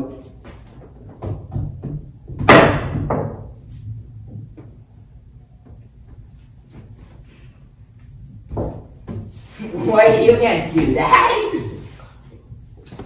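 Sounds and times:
knock on wooden pool table: 0:01.1 - 0:03.5, 0:08.5 - 0:09.2.

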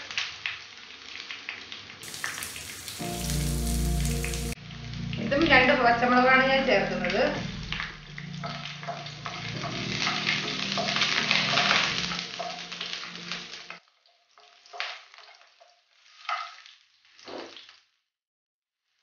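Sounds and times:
food sizzling in hot oil: 0:00.0 - 0:18.0
spatula scraping a pan: 0:14.3 - 0:17.6.

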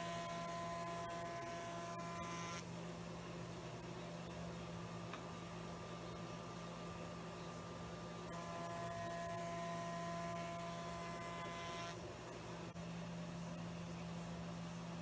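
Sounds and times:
cutter whining through panel: 0:00.0 - 0:02.7, 0:08.3 - 0:12.1
spindle shaper humming: 0:00.0 - 0:02.8, 0:08.2 - 0:15.0.

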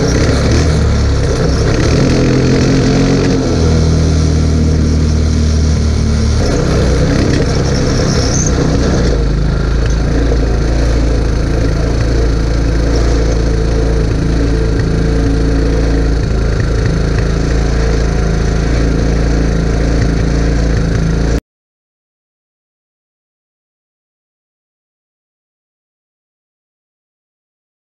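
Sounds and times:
quad bike engine idling: 0:00.0 - 0:21.4.

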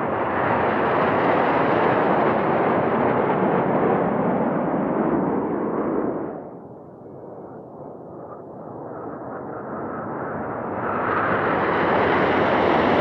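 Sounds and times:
jets roaring overhead: 0:00.0 - 0:06.6.

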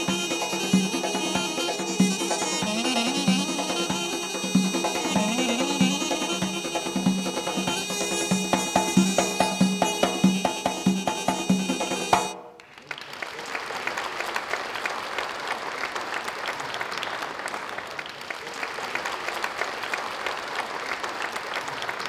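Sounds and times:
audience applauding: 0:12.1 - 0:22.0.

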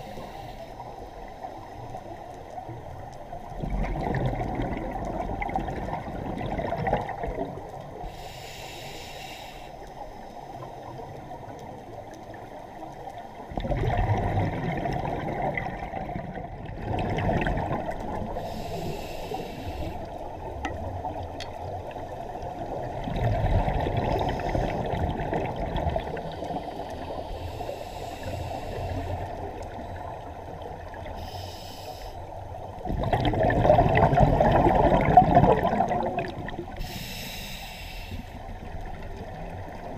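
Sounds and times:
exhaled air bubbling: 0:03.4 - 0:08.4, 0:13.4 - 0:31.7, 0:32.5 - 0:39.9
regulator hissing inhalations: 0:08.0 - 0:10.6, 0:18.4 - 0:20.1, 0:26.3 - 0:29.3, 0:31.1 - 0:32.3, 0:36.7 - 0:38.5.

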